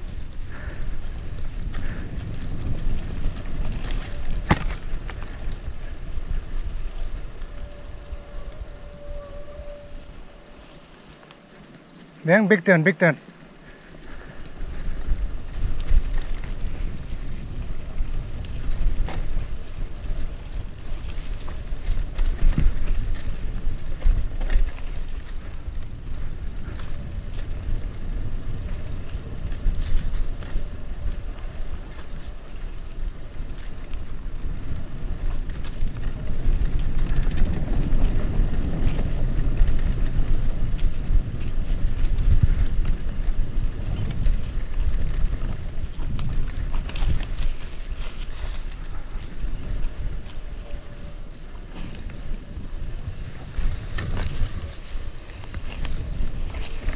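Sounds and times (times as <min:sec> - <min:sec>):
wind noise on microphone: 0:00.0 - 0:11.0, 0:13.6 - 0:56.9
tyres rumbling over dirt: 0:00.0 - 0:56.9
bike knocks and rattles: 0:01.6 - 0:05.6.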